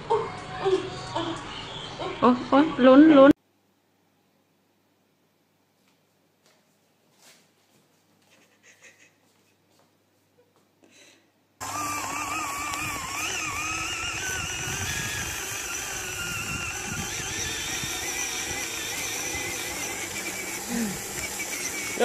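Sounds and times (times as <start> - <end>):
toy electric motor whining: 11.6 - 22.0.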